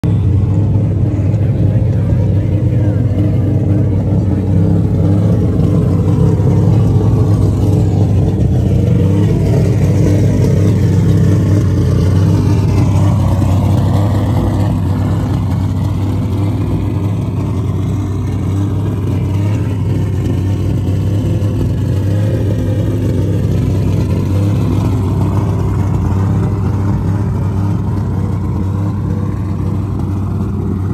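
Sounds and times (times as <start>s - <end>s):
car engine rumbling: 0.0s - 30.9s.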